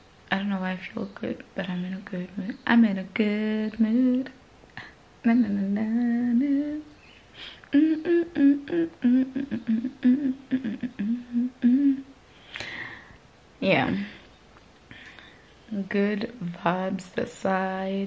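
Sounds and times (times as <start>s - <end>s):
woman humming a tune: 1.7s - 4.4s, 5.2s - 12.7s.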